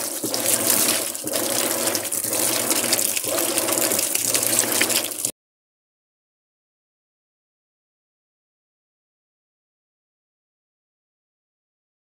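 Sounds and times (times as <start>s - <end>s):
washing machine filling and churning: 0.0s - 5.3s.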